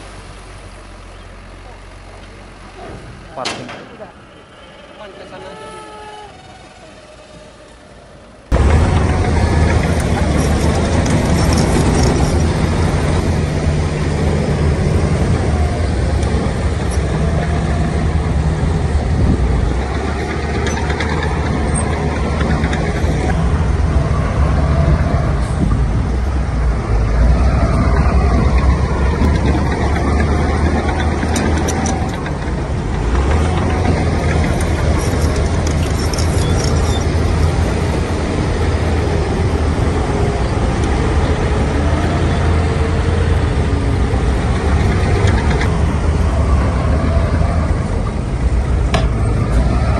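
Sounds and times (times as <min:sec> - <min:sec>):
heavy diesel truck engines droning: 0:00.0 - 0:49.9.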